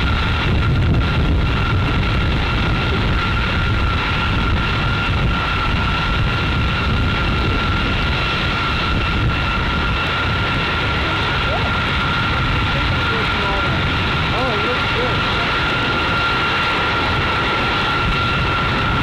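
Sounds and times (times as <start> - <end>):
jet engines taxiing: 0.0 - 19.0.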